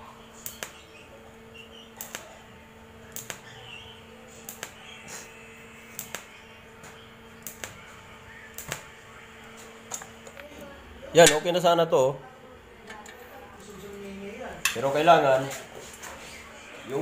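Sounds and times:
steady electrical hum: 0.0s - 17.0s
welding arc clicks: 0.4s - 2.4s, 3.0s - 3.6s, 4.4s - 4.9s, 5.9s - 7.9s, 8.5s - 8.9s.

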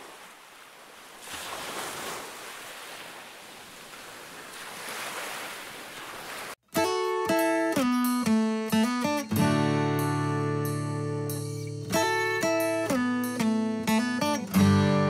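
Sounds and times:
waves breaking: 0.0s - 6.6s.

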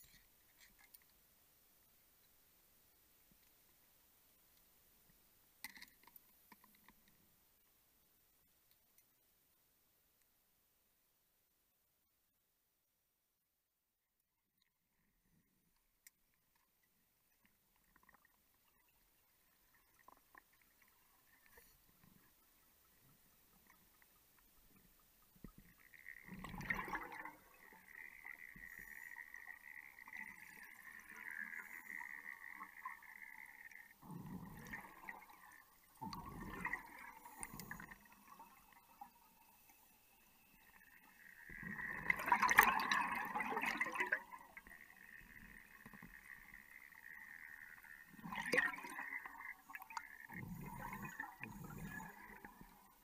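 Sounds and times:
faint steady hiss: 0.0s - 53.0s
underwater gurgling and bubbling: 24.8s - 53.0s.

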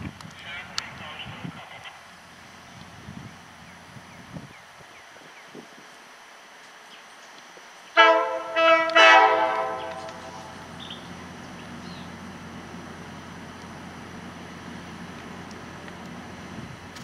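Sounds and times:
train rumble: 0.0s - 17.0s
locomotive horn blasts: 8.0s - 10.7s.

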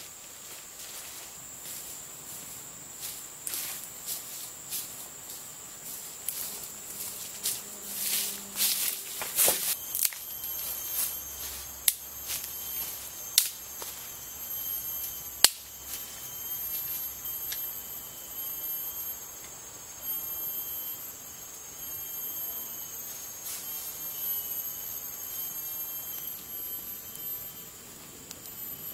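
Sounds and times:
insects droning: 0.0s - 28.9s
sharp snaps: 15.4s - 15.7s.

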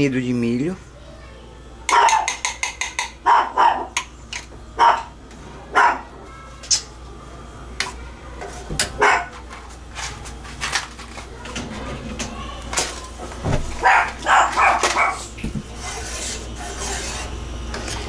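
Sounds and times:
dog barking: 1.9s - 2.4s, 3.2s - 4.0s, 4.8s - 5.1s, 5.7s - 6.1s, 9.0s - 9.4s, 13.8s - 15.3s.

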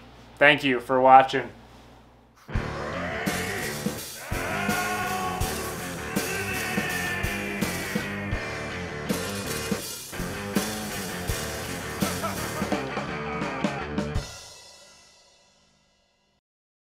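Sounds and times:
rock music with drums and guitar: 2.5s - 15.2s.

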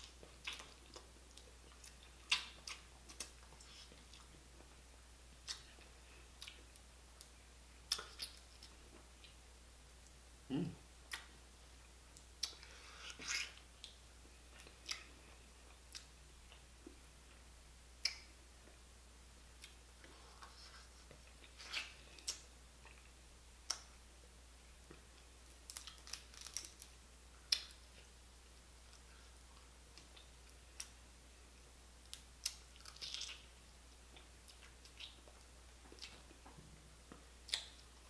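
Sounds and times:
chewing: 0.0s - 4.8s, 32.1s - 33.5s.

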